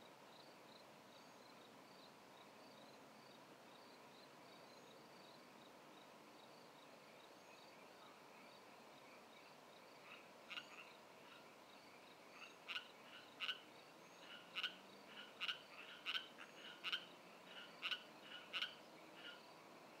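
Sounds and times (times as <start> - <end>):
crickets chirping: 0.0 - 20.0
frog croaking: 10.0 - 11.4, 12.4 - 19.5.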